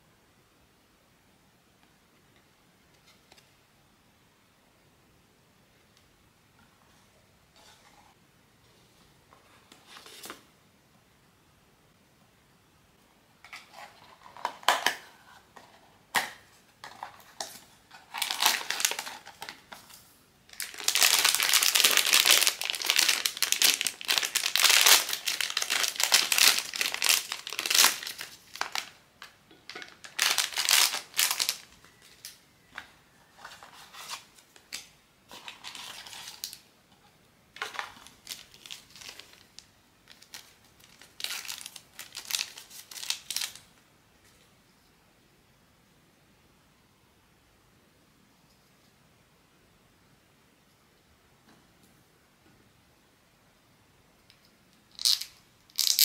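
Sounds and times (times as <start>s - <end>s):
packaging crinkling and tearing: 16.8s - 19.8s, 20.5s - 32.4s, 33.4s - 36.6s, 37.6s - 43.7s, 54.9s - 56.0s.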